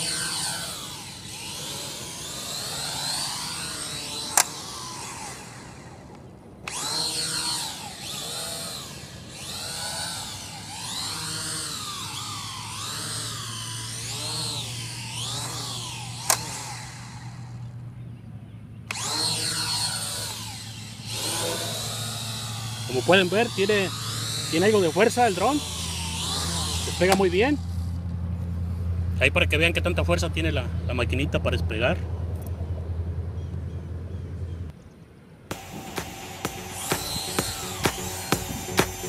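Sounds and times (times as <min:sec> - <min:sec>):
quadcopter propellers whining: 0:00.0 - 0:32.7, 0:35.5 - 0:39.0
sharp clicks: 0:04.2 - 0:04.6, 0:16.2 - 0:16.8, 0:35.5 - 0:39.0.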